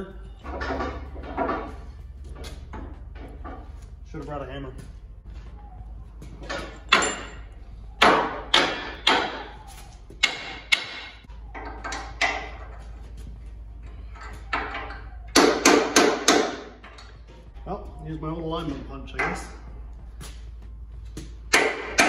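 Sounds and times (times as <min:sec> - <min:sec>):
hammer striking steel: 0:06.4 - 0:12.7, 0:14.5 - 0:17.0, 0:21.5 - 0:22.0.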